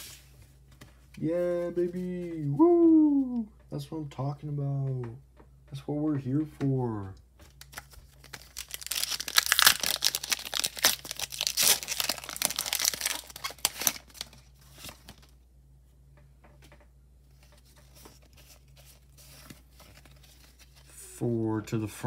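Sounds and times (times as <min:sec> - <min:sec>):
foil wrapper tearing and crinkling: 0:07.6 - 0:15.2.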